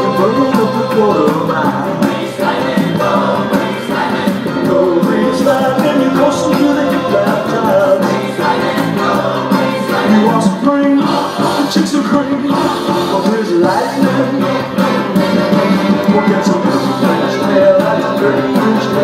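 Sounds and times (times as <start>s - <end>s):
music with singing: 0.0s - 19.0s.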